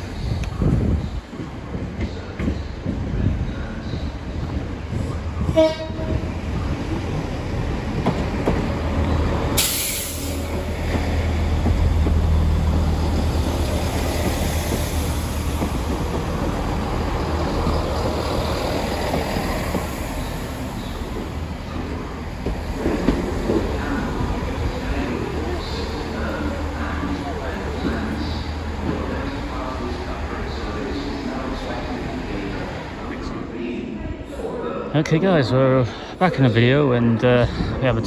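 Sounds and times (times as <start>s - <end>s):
diesel train engine rumbling: 0.0s - 38.0s
sharp hiss: 9.6s - 10.5s.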